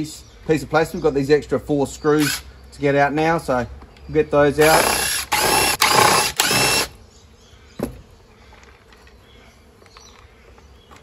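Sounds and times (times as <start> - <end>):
impact driver running: 2.2 - 2.4, 4.6 - 7.0.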